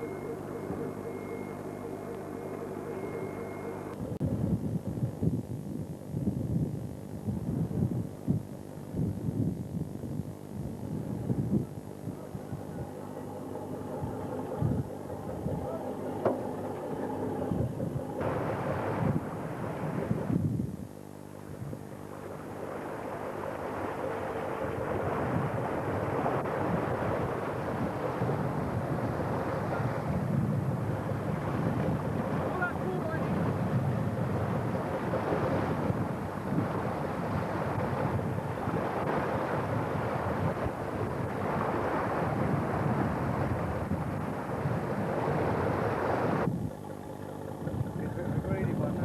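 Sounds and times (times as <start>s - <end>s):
boat engine humming: 0.0s - 49.0s
wind buffeting microphone: 0.0s - 49.0s
water rushing past hull: 11.1s - 49.0s.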